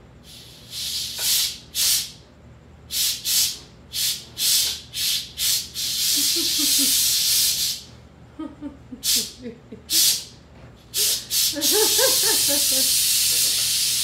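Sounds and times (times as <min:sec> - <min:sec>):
pressure cooker steam hissing: 0:11.0 - 0:14.0.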